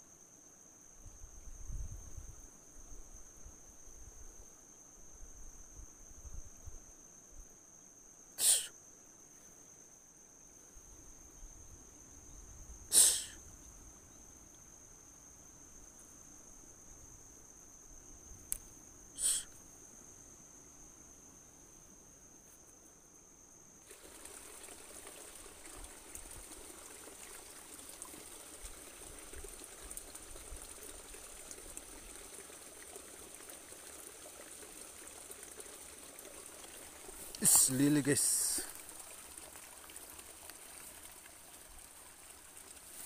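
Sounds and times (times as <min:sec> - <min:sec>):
insects chirring: 0:00.0 - 0:43.0
sharp hissy bursts: 0:08.4 - 0:08.7, 0:12.9 - 0:13.4, 0:19.2 - 0:19.6.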